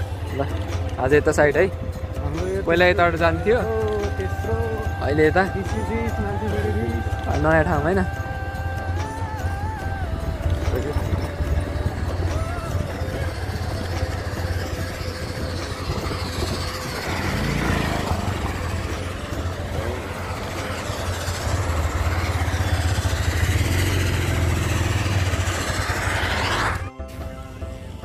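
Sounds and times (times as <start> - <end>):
motorcycle engine on gravel: 10.3 - 26.6.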